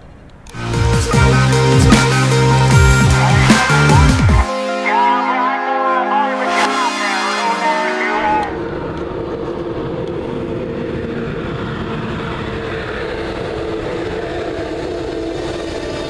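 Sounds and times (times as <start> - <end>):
train passing: 0.0 - 16.0
music: 0.5 - 10.3.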